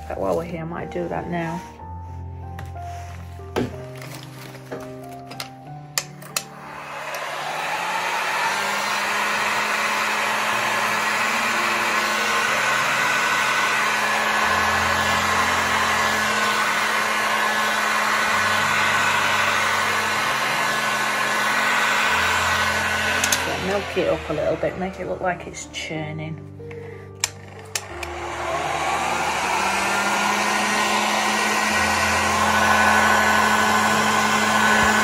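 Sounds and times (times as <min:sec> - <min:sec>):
heat gun blowing air: 0:06.0 - 0:25.6, 0:26.7 - 0:35.0.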